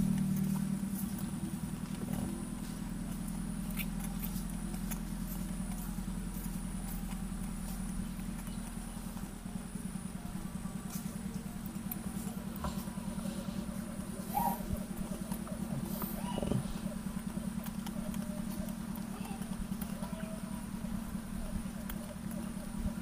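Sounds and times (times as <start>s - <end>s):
small engine running: 0.0s - 23.0s
faint clicks: 14.3s - 22.9s.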